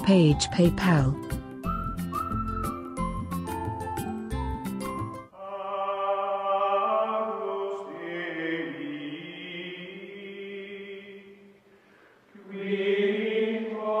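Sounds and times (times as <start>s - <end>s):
choral chanting: 5.4s - 11.5s, 12.3s - 14.0s.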